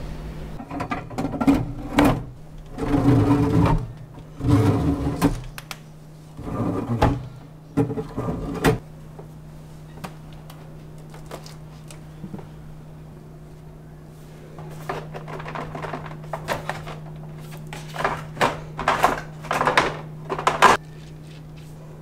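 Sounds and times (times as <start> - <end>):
steady low hum: 0.0 - 22.0
sliding shelf runners rumbling: 0.6 - 5.5, 6.4 - 8.8, 14.7 - 20.8
knocks and clatter in cabinet: 6.6 - 8.8, 14.9 - 17.2, 17.8 - 20.8.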